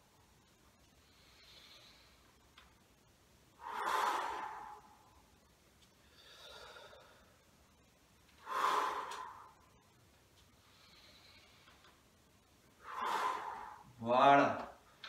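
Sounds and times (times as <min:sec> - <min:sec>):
man exhaling forcefully: 0:03.6 - 0:05.1, 0:08.4 - 0:09.6, 0:12.8 - 0:13.9
man inhaling softly: 0:06.0 - 0:07.4.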